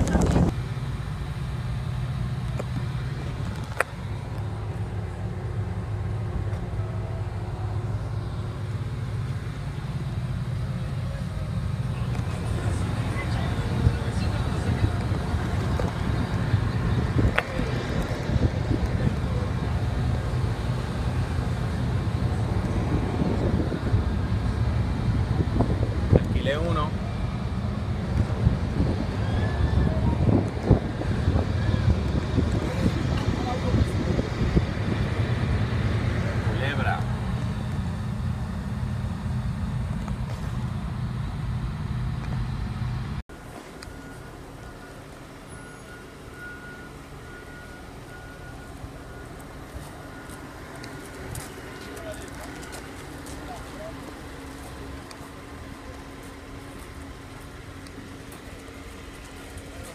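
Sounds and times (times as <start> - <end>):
wind buffeting microphone: 0.0 - 0.6, 11.8 - 36.6
ferry engine low rumble: 0.0 - 59.9.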